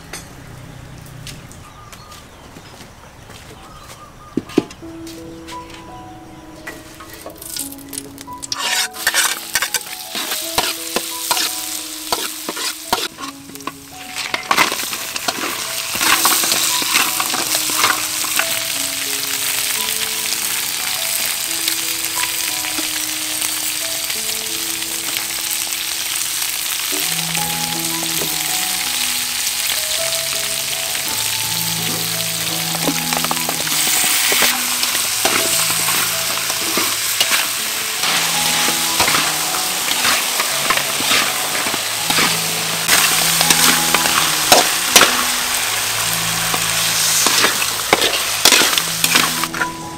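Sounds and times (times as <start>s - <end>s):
food sizzling in hot oil: 7.0s - 49.9s
spatula stirring in wok: 8.5s - 18.7s, 32.8s - 49.8s.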